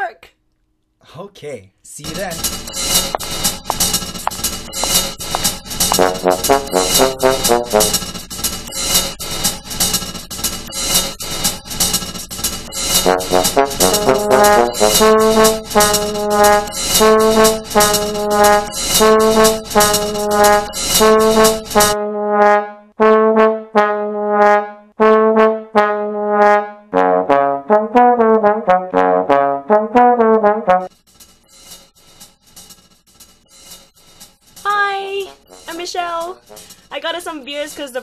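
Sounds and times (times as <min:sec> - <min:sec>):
percussion beat: 0:02.0 - 0:22.0, 0:30.8 - 0:38.0
horn playing notes: 0:04.8 - 0:08.0, 0:13.0 - 0:30.9.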